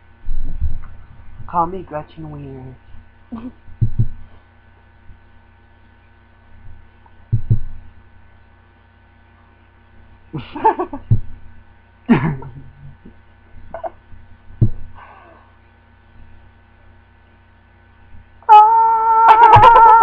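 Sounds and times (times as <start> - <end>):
electrical hum: 0.0 - 20.0
dull thumps: 3.8 - 4.2, 7.3 - 7.8, 11.0 - 11.4, 14.5 - 15.0.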